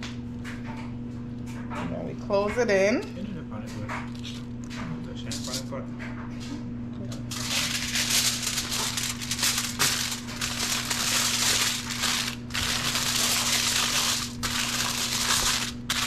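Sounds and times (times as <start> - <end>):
aluminium foil crinkling: 4.1 - 4.5, 7.3 - 16.0.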